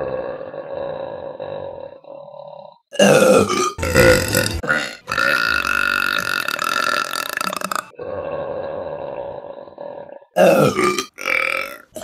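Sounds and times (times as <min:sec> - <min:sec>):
women burping loudly: 0:02.9 - 0:08.4, 0:10.4 - 0:12.0.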